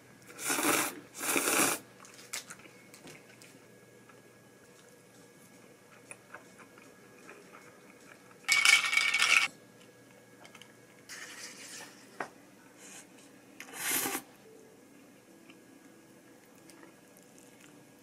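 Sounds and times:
tableware clinking and clattering: 8.5s - 9.5s.

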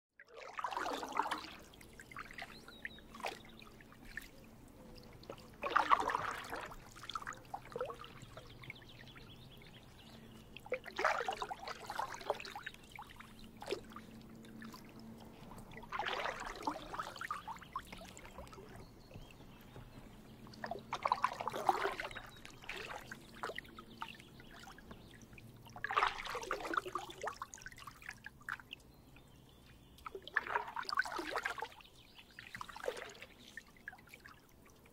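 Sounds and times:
kayak paddle strokes splashing: 0.4s - 28.6s, 30.1s - 31.7s, 32.3s - 34.3s.

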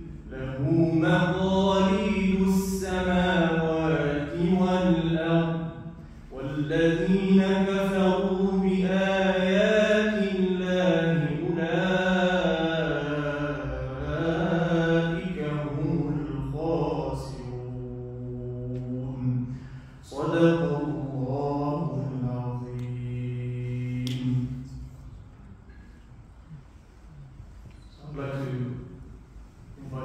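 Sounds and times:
man reciting melodically: 0.0s - 25.1s, 27.9s - 29.0s, 29.7s - 30.0s.

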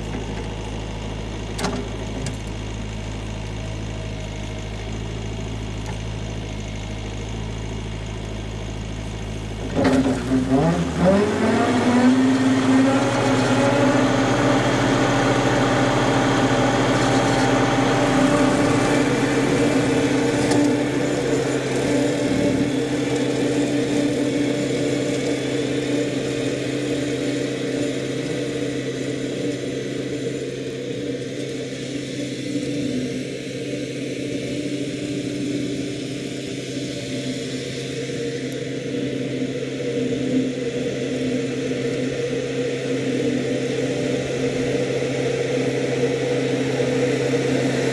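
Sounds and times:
rotary cutter blades whining: 0.0s - 47.9s
tractor engine: 0.0s - 47.9s.

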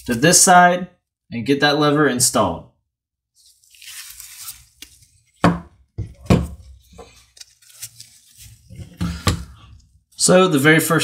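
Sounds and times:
glove handling rustle: 3.4s - 5.4s, 6.7s - 9.0s.

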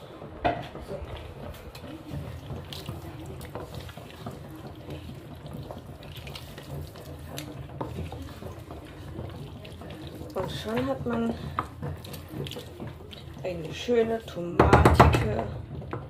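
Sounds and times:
wooden spoon stirring thick sauce: 0.0s - 16.0s
spoon knocking against pot: 14.5s - 16.0s.

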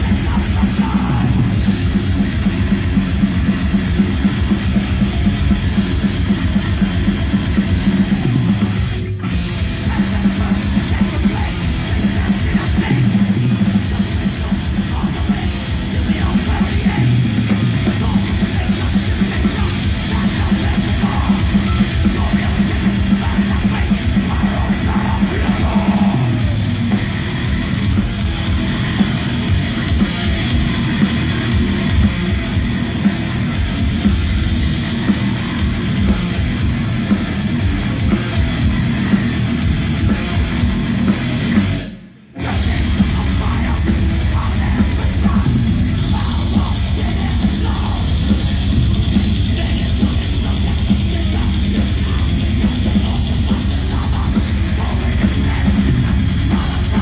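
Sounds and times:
metal band playing live: 0.0s - 57.0s.

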